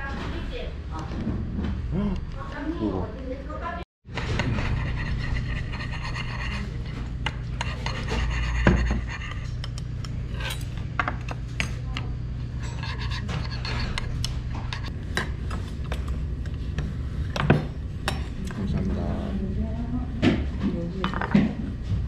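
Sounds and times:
steady low hum: 0:00.0 - 0:22.0
scraping against table: 0:04.2 - 0:09.6.

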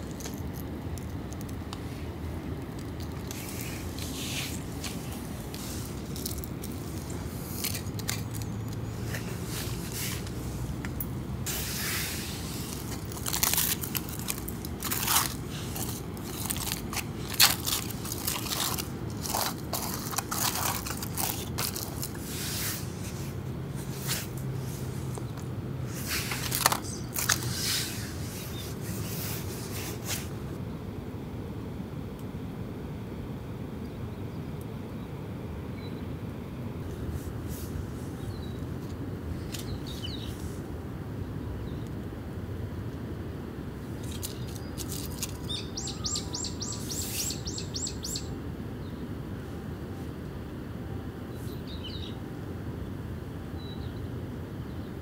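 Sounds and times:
aluminium foil crinkling: 0:00.0 - 0:01.8, 0:02.6 - 0:10.3, 0:12.4 - 0:23.0, 0:25.0 - 0:28.7, 0:44.0 - 0:45.6.

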